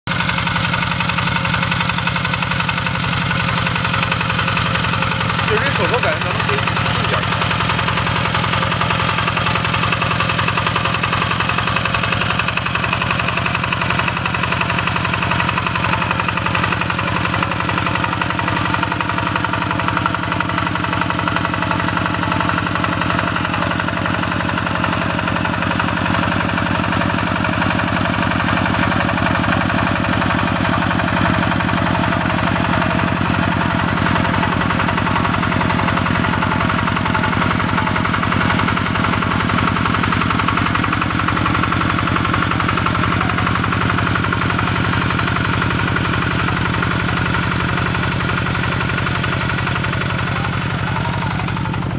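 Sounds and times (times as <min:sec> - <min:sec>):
diesel engine knocking: 0:00.1 - 0:51.9.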